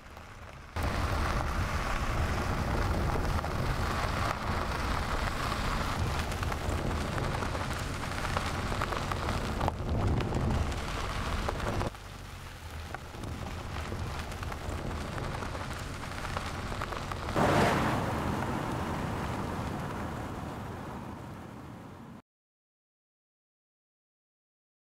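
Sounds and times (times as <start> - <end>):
tyres rolling over gravel: 0.0 - 22.2
car passing close: 17.3 - 22.2.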